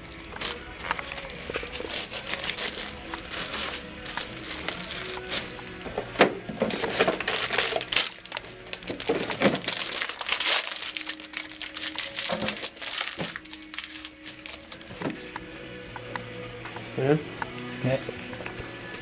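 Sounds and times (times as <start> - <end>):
plastic wrap crinkling: 0.0 - 5.7, 6.6 - 15.2
items knocking: 0.0 - 10.9, 11.9 - 13.5
background music: 0.0 - 19.0.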